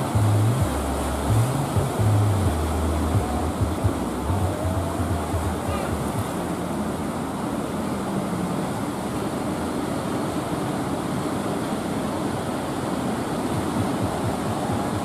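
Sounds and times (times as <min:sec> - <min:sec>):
steady low rumble: 0:00.0 - 0:10.4
ocean surf breaking: 0:00.0 - 0:15.0.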